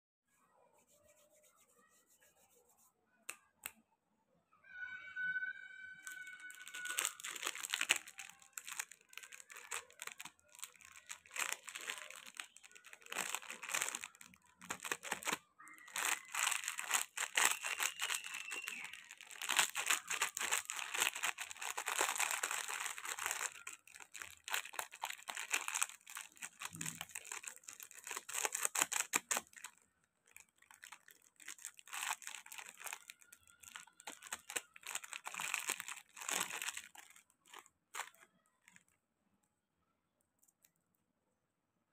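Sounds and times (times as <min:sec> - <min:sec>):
plastic candy wrappers crinkling: 0:06.0 - 0:39.0.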